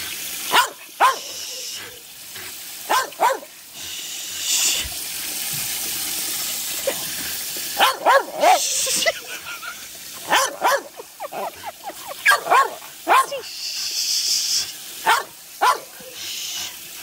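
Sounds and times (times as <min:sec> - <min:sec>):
water spraying from hose: 0:00.0 - 0:17.0
small dog barking: 0:00.5 - 0:01.3, 0:02.9 - 0:03.5, 0:07.8 - 0:08.8, 0:10.2 - 0:13.5, 0:15.0 - 0:16.0.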